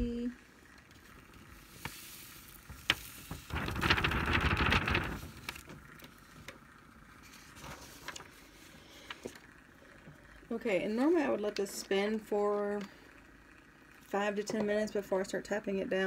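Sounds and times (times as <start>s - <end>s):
paper rustling: 1.8s - 6.4s, 7.2s - 9.3s.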